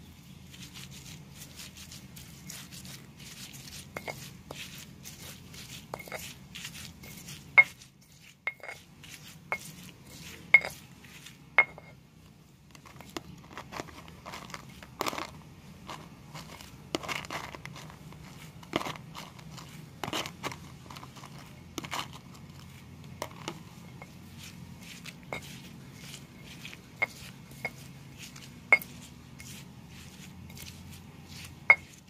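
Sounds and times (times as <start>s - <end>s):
crunching and rustling of seeds: 0.0s - 32.0s
stone pestle striking stone mortar: 3.3s - 10.8s, 11.6s - 12.0s, 24.8s - 30.7s, 31.6s - 32.0s.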